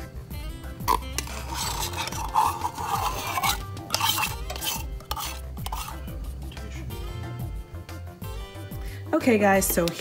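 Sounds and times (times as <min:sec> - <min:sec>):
utensil scraping a can: 0:00.9 - 0:06.2.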